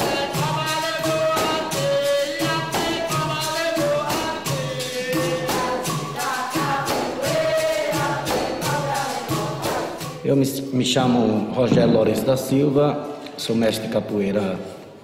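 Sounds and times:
voices singing together: 0.0s - 10.4s
hand percussion beat: 0.0s - 12.5s.

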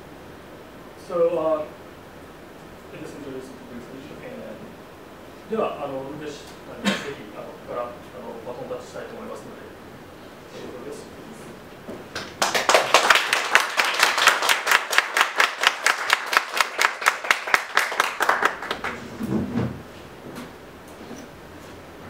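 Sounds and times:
audience clapping: 12.1s - 19.2s.

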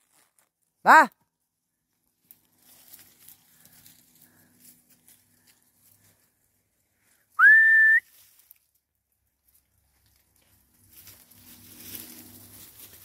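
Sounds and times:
footsteps crunching on dry leaves: 2.2s - 6.6s, 8.1s - 8.7s, 9.4s - 13.0s
high whistle: 7.4s - 8.1s.

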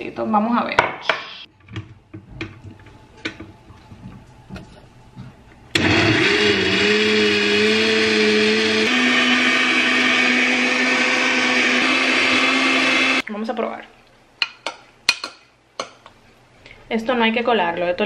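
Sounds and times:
blender running: 5.8s - 13.2s.

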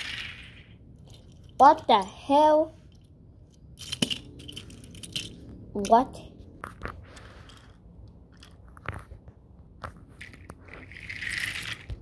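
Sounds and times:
toy trains clicking and knocking: 0.0s - 6.2s, 10.2s - 12.0s.

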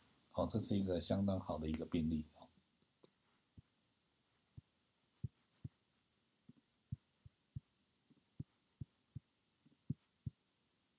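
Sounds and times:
faint low thuds: 4.4s - 10.5s.

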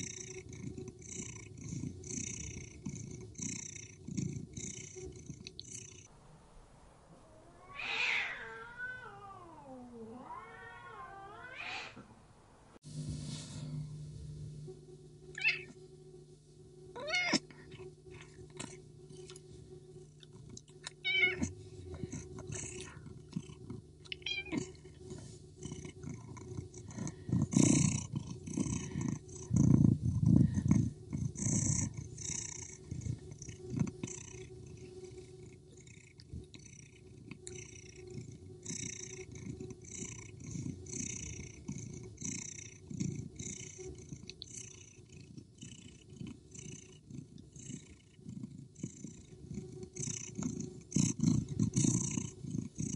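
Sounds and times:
cat growling low: 0.0s - 6.1s, 7.1s - 12.2s, 15.3s - 15.8s, 16.9s - 19.4s, 20.2s - 52.9s
cats yowling: 7.2s - 12.2s, 15.4s - 15.8s, 17.0s - 17.5s, 20.9s - 21.5s, 24.2s - 24.8s.

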